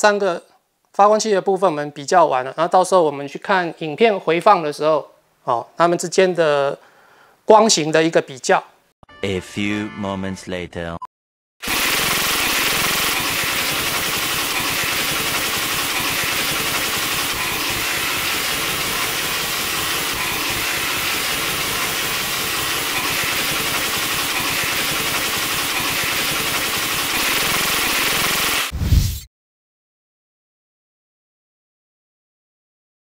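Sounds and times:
loud steady hiss: 0:11.7 - 0:28.7.

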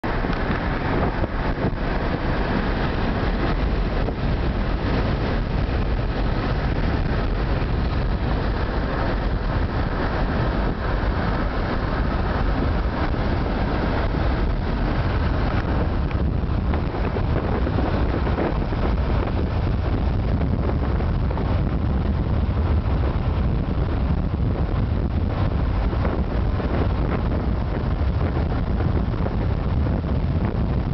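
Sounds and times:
car road and wind noise: 0:00.0 - 0:30.9.

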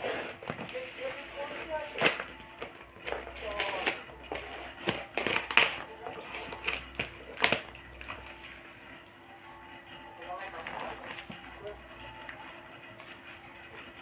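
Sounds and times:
tape and cardboard rustling: 0:00.0 - 0:08.3
scissors snipping packing tape: 0:03.0 - 0:05.8, 0:06.4 - 0:07.9.

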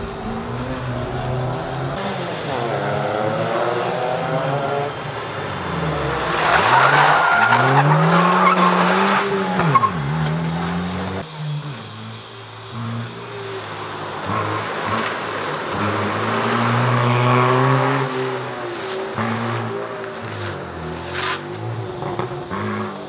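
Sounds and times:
car engine revving: 0:00.0 - 0:23.0
tyres squealing: 0:04.7 - 0:11.2.

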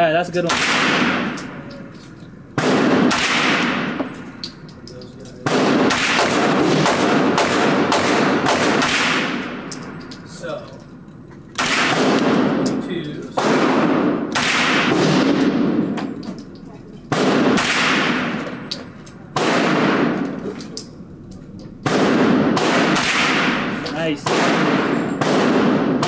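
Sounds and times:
rifle shots echoing indoors: 0:00.5 - 0:01.6, 0:02.6 - 0:04.5, 0:05.4 - 0:10.1, 0:11.6 - 0:12.8, 0:13.4 - 0:16.2, 0:17.1 - 0:18.8, 0:19.4 - 0:20.4, 0:21.8 - 0:26.0.

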